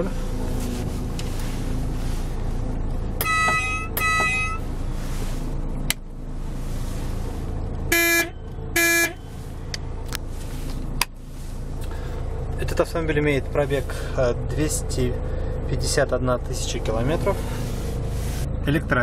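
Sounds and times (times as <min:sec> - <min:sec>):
diesel engine idling: 0:00.0 - 0:19.0
truck horn blasts: 0:03.2 - 0:04.7, 0:07.9 - 0:09.4.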